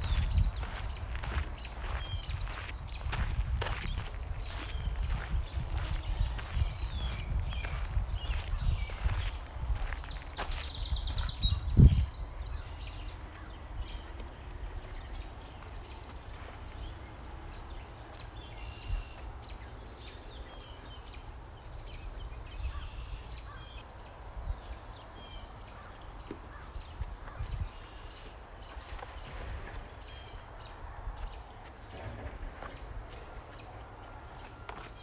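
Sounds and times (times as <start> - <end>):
steady low rumble: 0.0 - 26.2
songbirds singing: 0.0 - 35.0.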